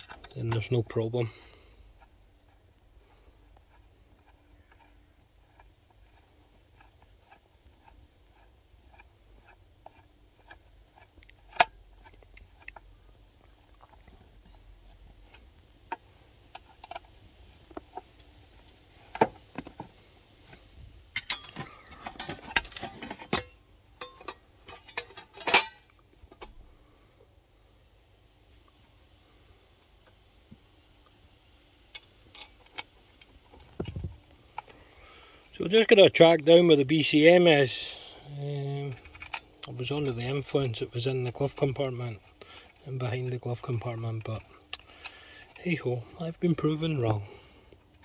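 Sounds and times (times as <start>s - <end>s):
faint steady hum: 0.0s - 48.0s
tools and small parts clicking: 21.1s - 26.0s.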